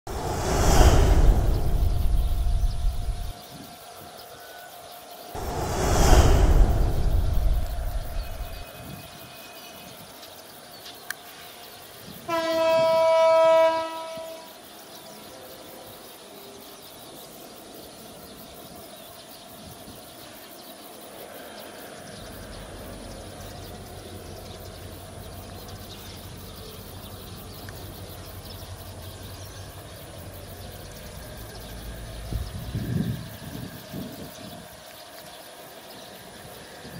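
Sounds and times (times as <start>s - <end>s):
outdoor background noise: 0.0s - 36.9s
distant locomotive engine rumble: 0.1s - 3.3s, 5.4s - 8.9s, 21.2s - 34.8s.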